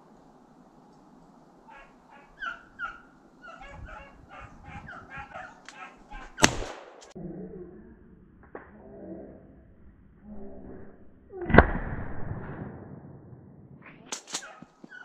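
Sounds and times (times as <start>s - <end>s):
dogs barking and yelping: 1.7s - 6.4s, 14.3s - 15.0s
shotgun shot: 6.4s - 7.2s, 14.1s - 14.6s.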